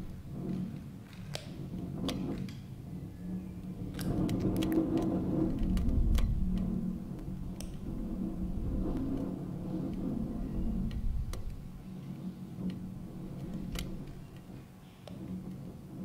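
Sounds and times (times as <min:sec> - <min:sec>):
low steady hum: 0:00.0 - 0:16.0
deep rumble: 0:03.8 - 0:11.8
sharp clicks and ticks: 0:03.9 - 0:07.8.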